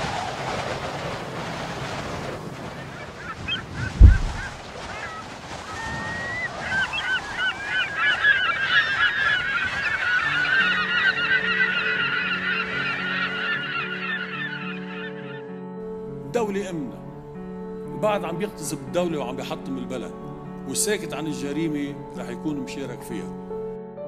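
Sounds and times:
flock of birds chirping: 2.2s - 15.5s
deep thud: 4.0s - 4.6s.

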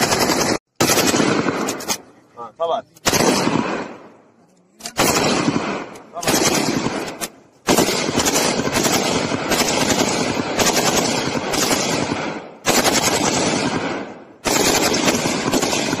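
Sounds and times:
automatic rifle bursts: 4.8s - 12.1s.

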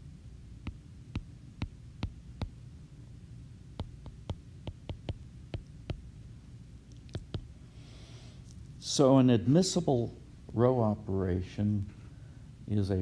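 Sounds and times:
low steady hum: 0.0s - 13.0s
stylus tapping on glass screen: 0.7s - 2.6s, 3.8s - 6.1s, 7.1s - 7.5s.

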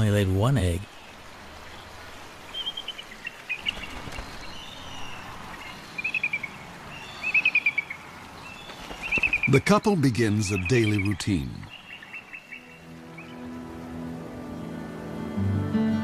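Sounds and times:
eagle high piping calls: 10.3s - 13.4s.

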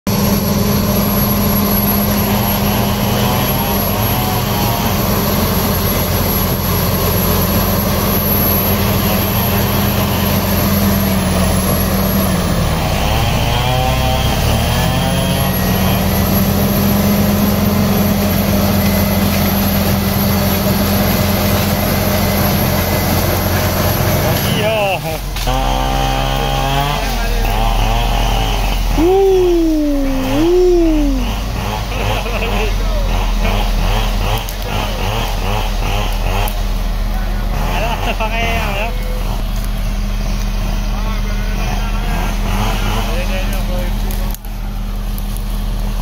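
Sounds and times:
diesel engine running hard: 0.0s - 46.0s
high whine: 28.8s - 32.0s.

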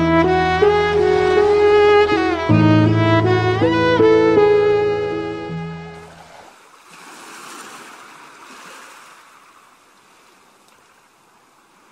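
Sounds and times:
held string music: 0.0s - 6.1s
waves breaking on a beach: 6.0s - 11.9s.

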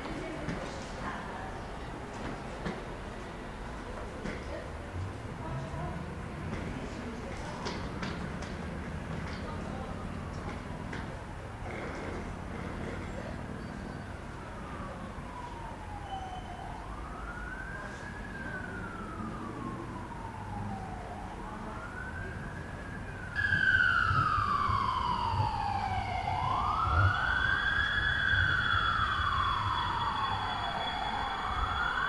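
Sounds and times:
siren wailing: 13.6s - 32.0s.

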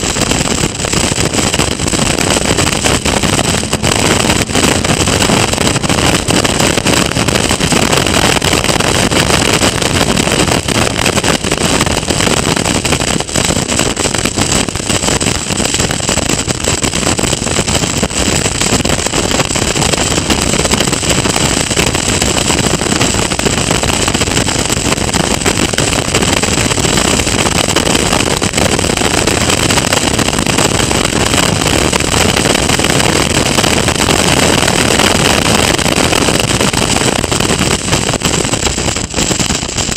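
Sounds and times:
race car engine running hard: 0.0s - 8.7s
wind rushing over microphone: 0.0s - 39.9s.

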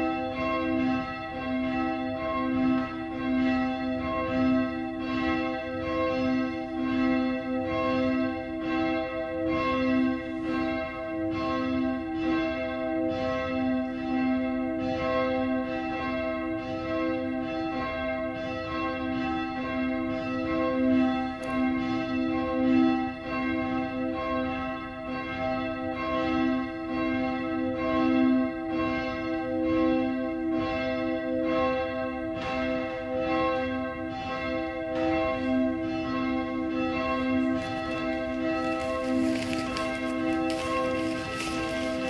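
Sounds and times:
church bells ringing: 0.0s - 42.0s.

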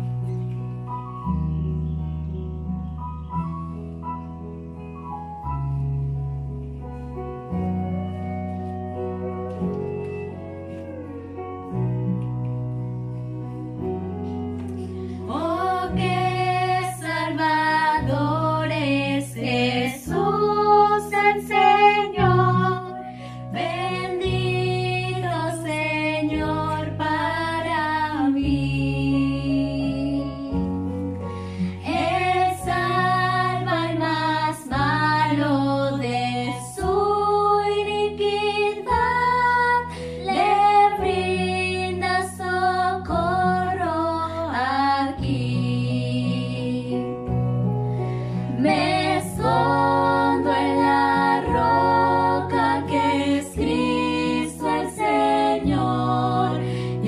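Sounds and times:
instrumental accompaniment: 0.0s - 45.8s, 46.4s - 57.0s
girls singing a hymn: 14.6s - 47.4s, 48.1s - 57.0s.

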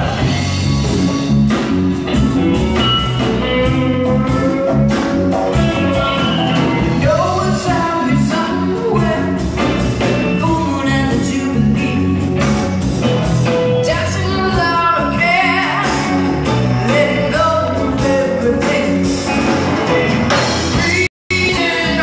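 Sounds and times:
rock band playing: 0.0s - 22.0s
woman singing: 7.0s - 9.6s, 10.4s - 12.1s, 13.8s - 16.1s, 16.9s - 19.1s.

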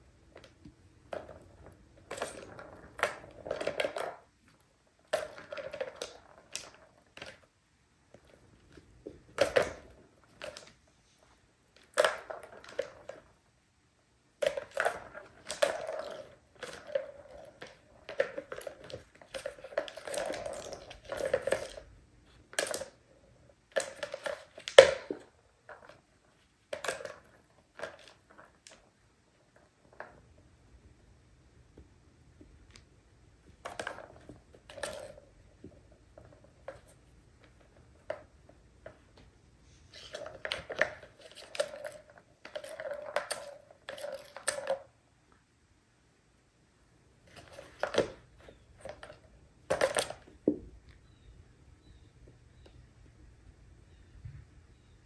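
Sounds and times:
plastic balls rolling and rattling: 0.0s - 31.0s, 31.7s - 45.4s, 47.1s - 53.3s.

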